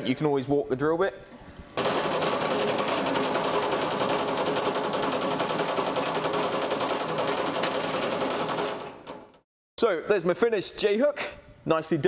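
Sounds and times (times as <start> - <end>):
drill press drilling metal: 1.8 - 9.4.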